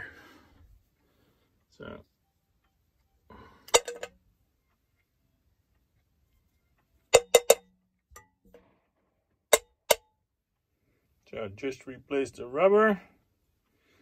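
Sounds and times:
plastic parts clinking in metal tin: 3.7 - 4.2.

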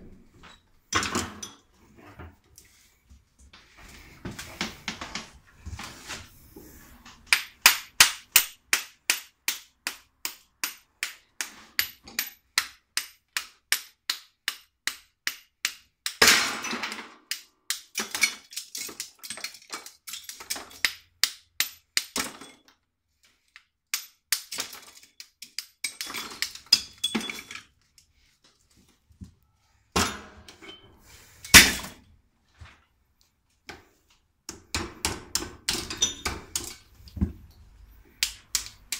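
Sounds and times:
hammer striking scrap metal: 29.9 - 30.5, 31.5 - 32.0.

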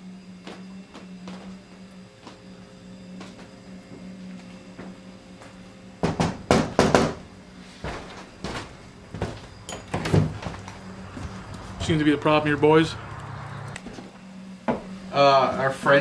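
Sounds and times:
knocking on wooden door: 6.0 - 7.2
door thumping as opened: 9.2 - 10.6.

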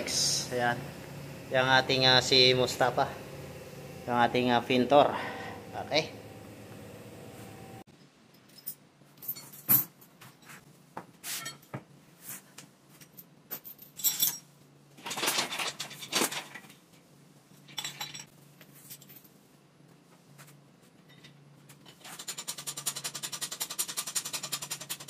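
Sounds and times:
steel chain clinking and rattling: 8.3 - 10.0, 13.1 - 16.6, 17.6 - 18.3.

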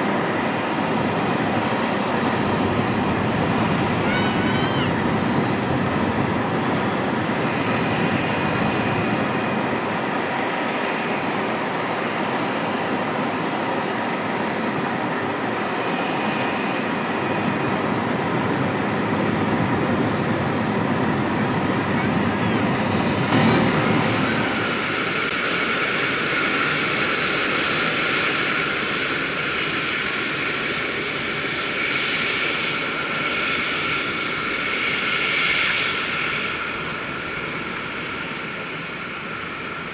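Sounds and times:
jet engines idling: 0.0 - 39.9.

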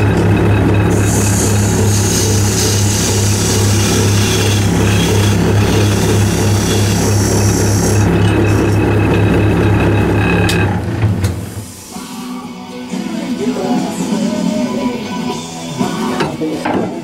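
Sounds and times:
chisel scraping spinning wood: 0.0 - 10.9
wood lathe motor hum: 0.0 - 11.0.

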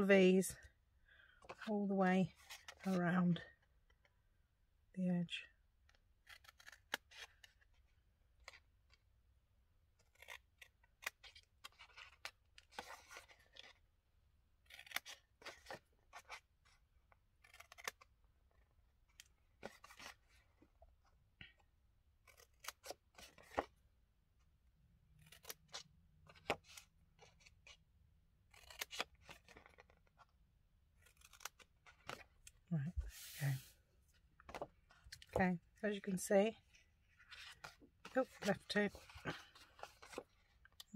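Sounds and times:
paper snips cutting paper: 6.2 - 7.5, 14.6 - 16.4, 17.4 - 18.1, 28.5 - 30.0, 31.0 - 32.2.

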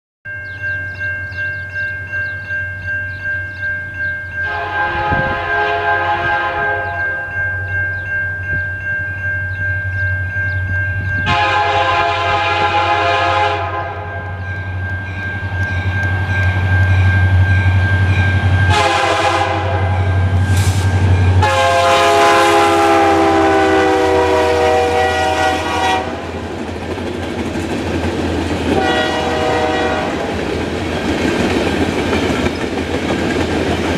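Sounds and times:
bell ringing: 0.3 - 5.4, 6.6 - 11.8, 14.1 - 21.6
locomotive air horn blasts: 4.4 - 7.2, 11.2 - 14.4, 18.7 - 20.4, 21.4 - 26.4, 28.7 - 30.4.

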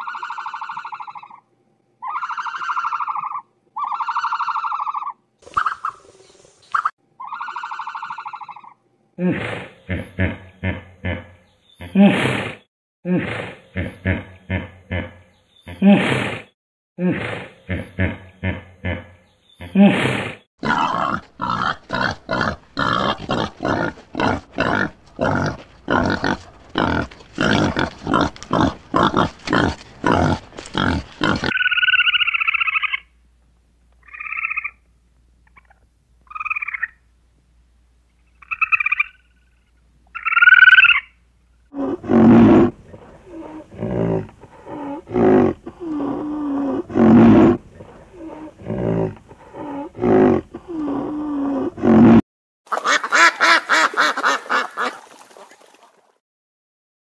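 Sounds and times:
low repeated animal calls: 0.0 - 6.0, 6.8 - 8.8, 20.6 - 33.1, 41.7 - 52.2
harsh animal calls: 2.0 - 6.0, 6.8 - 12.6, 17.2 - 33.1, 41.7 - 52.2
short high-pitched animal calls: 7.2 - 8.8.

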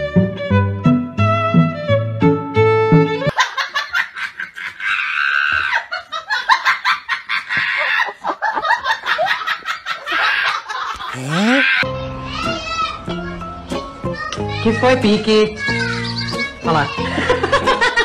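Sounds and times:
high-pitched giggling: 11.0 - 11.8.

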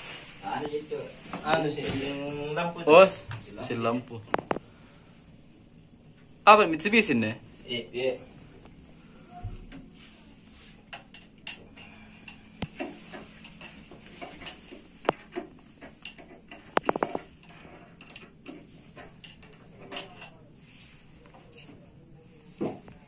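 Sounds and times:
metallic clinks of tools: 10.9 - 12.5, 17.4 - 18.4, 19.2 - 20.4.

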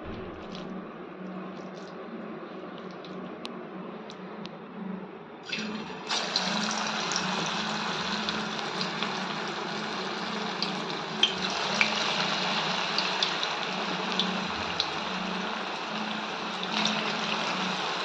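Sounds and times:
batter sizzling in hot oil: 6.1 - 18.0.

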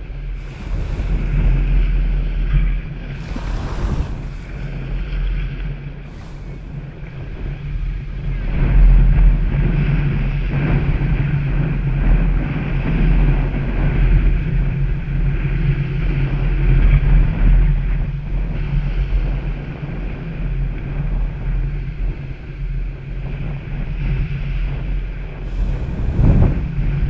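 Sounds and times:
small waves breaking on sand: 0.0 - 7.2, 25.5 - 26.6
wind buffeting microphone: 0.0 - 27.0.

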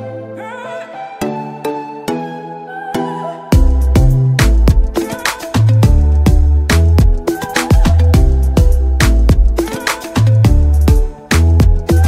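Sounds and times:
heavy bass line: 3.6 - 5.0, 5.6 - 12.0.

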